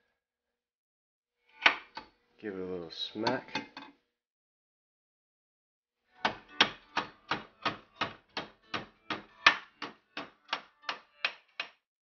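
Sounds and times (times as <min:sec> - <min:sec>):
hammer striking steel rod: 0:06.2 - 0:11.8.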